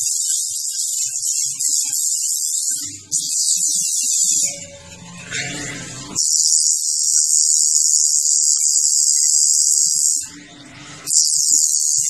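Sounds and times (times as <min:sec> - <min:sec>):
tattoo machine buzzing: 0:06.2 - 0:10.3, 0:11.1 - 0:12.0.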